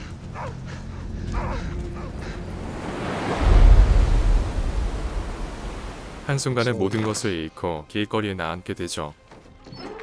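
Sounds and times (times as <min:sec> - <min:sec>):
waves crashing against cliff: 0:02.4 - 0:06.4.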